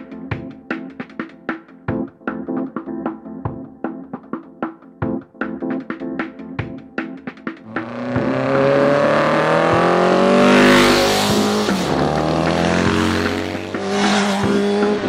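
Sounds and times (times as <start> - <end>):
motorcycles passing by: 7.7 - 15.0.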